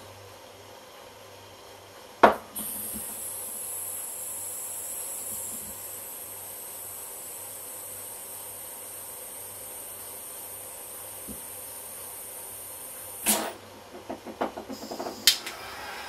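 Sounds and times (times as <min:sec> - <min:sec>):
high-pitched gas hiss: 0:02.6 - 0:13.6, 0:14.7 - 0:16.0.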